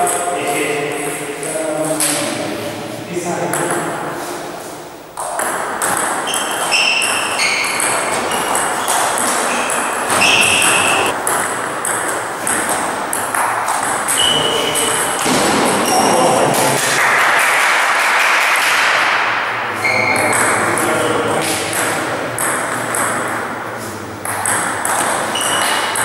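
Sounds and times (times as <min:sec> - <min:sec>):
hall background noise: 0:08.0 - 0:11.2.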